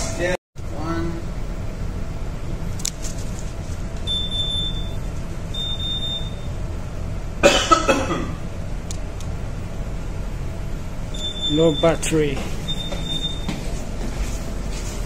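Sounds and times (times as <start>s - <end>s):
steady low hum: 0.0s - 15.0s
high-pitched alarm beeps: 4.0s - 6.6s, 11.1s - 13.6s
person coughing: 7.4s - 8.4s.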